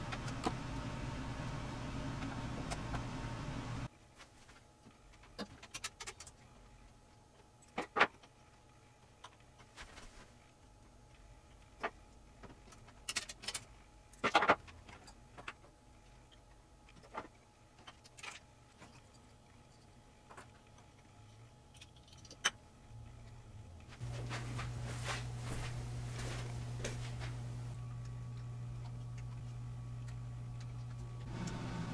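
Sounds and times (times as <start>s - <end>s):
steady low hum: 0.0s - 5.4s, 6.4s - 31.9s.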